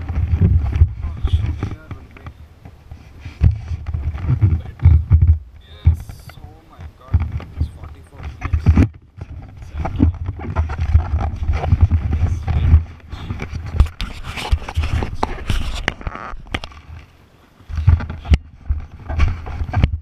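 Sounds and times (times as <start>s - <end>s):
low rumbling buffets: 0.0s - 14.0s
camera handling scraping: 0.0s - 17.1s
sharp knocks and clicks: 3.4s - 17.1s, 17.7s - 20.0s.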